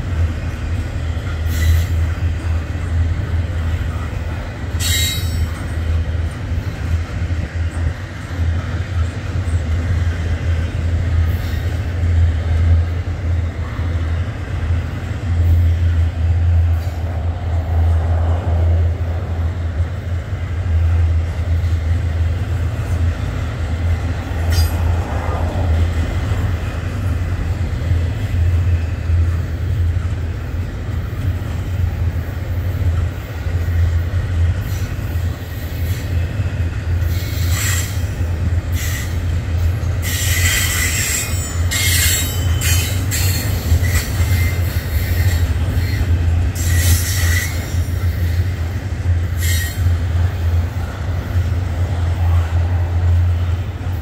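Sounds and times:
freight train rumbling past: 0.0s - 54.0s
high wheel squeals: 4.7s - 5.7s, 40.0s - 48.5s.

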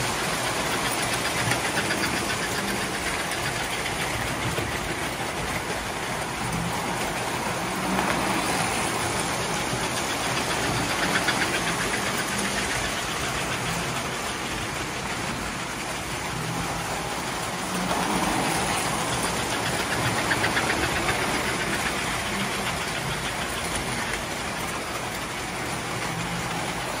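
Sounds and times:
model train motors humming: 0.0s - 27.0s
wheels clattering on metal rails: 0.0s - 27.0s.

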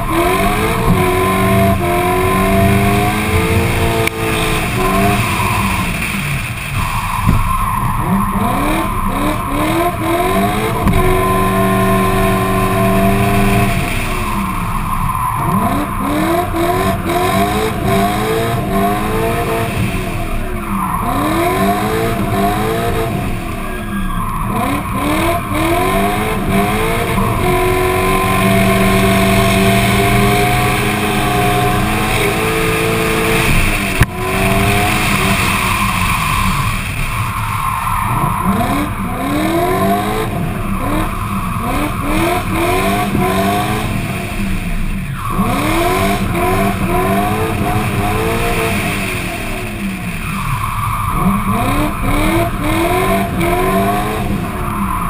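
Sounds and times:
car engine revving: 0.0s - 55.0s
tyre squeal: 20.2s - 43.0s.

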